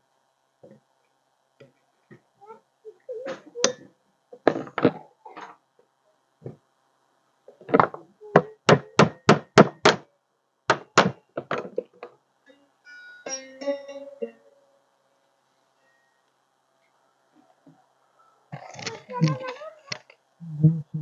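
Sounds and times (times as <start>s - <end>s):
hammer knocking on wooden frame: 8.7s - 10.0s
plucked string music: 12.5s - 14.8s.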